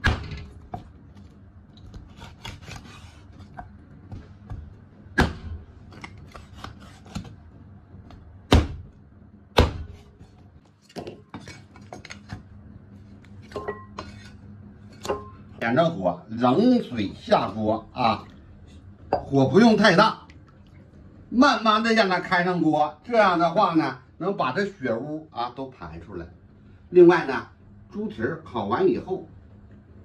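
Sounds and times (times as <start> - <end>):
blade scraping on wood: 2.1 - 3.6.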